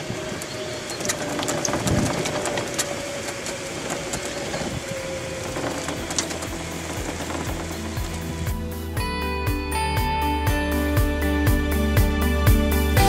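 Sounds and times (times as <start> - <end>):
rattling and knocks of rolling cart: 0.0 - 9.0
golf cart motor whining: 0.0 - 10.0.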